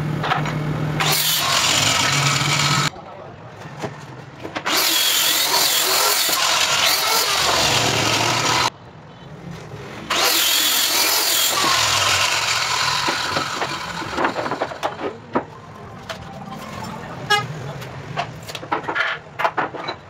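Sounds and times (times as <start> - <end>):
circular saw cutting wood: 1.0 - 2.9, 4.6 - 8.7, 10.1 - 14.8.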